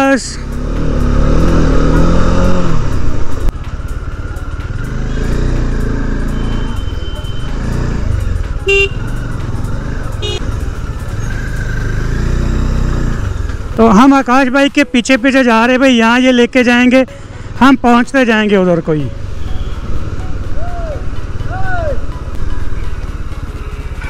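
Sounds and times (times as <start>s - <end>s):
motorcycle engine running: 0.3s - 14.0s
vehicle horn toots: 8.6s - 9.2s, 10.2s - 10.5s.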